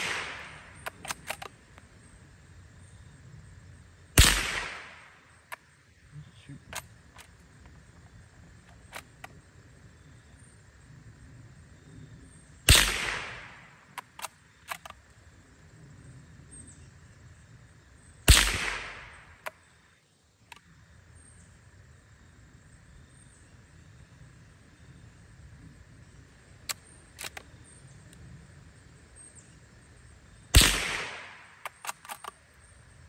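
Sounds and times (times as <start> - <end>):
rifle shots: 0.0 - 1.5, 4.2 - 5.2, 12.7 - 14.9, 18.3 - 19.5, 30.5 - 32.4
rifle bolt metallic clicks: 0.0 - 1.8, 6.6 - 7.7, 8.7 - 9.3, 13.9 - 15.0, 26.6 - 27.5, 30.6 - 32.4.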